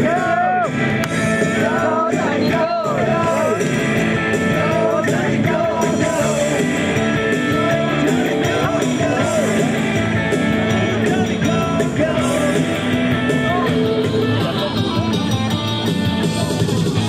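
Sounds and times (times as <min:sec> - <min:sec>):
rock music with singing: 0:00.0 - 0:17.0.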